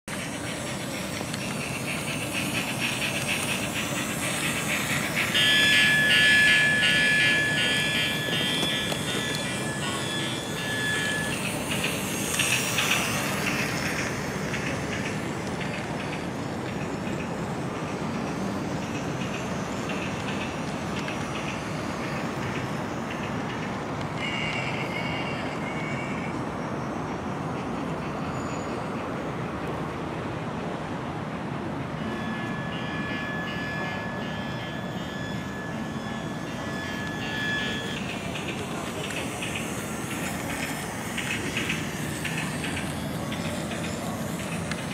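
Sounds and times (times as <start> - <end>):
toy train motor whine: 0.1 - 23.2, 32.3 - 44.9
thin high steady tone: 0.1 - 28.9, 31.8 - 44.9
outdoor background noise: 0.1 - 44.9.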